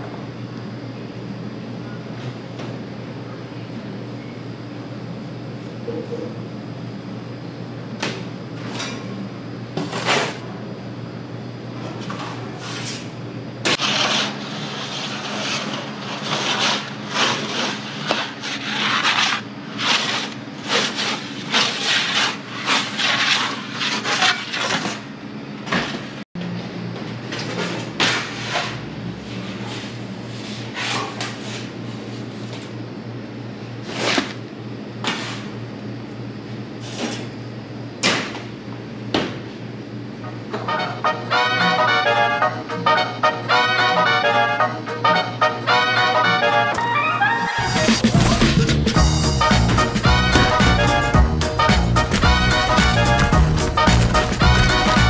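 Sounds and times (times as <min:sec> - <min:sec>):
low machine hum: 0:00.0 - 0:55.0
metal peel scraping on oven stone: 0:13.8 - 0:25.0.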